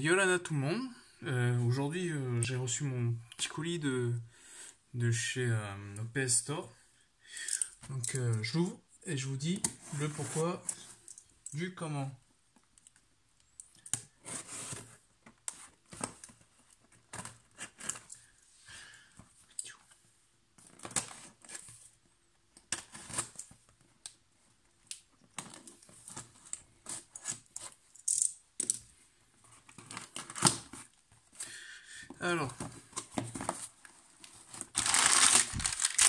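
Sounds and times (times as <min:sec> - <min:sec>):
cardboard parcel being torn open: 0:34.6 - 0:36.0.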